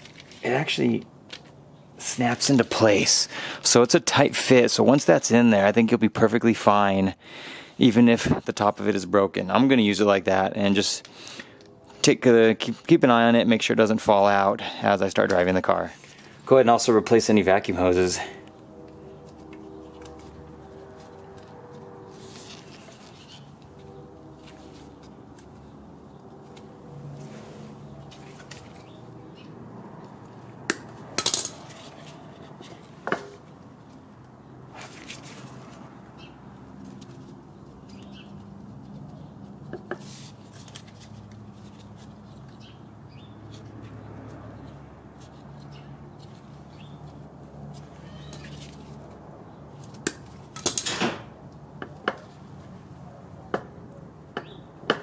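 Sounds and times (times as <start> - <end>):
metal tools clinking on metal: 31.2 - 32.0.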